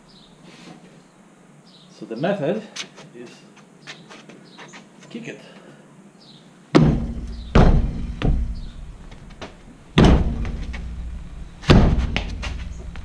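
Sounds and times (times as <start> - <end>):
boot kicking a tyre: 6.8 - 8.8, 9.4 - 13.0.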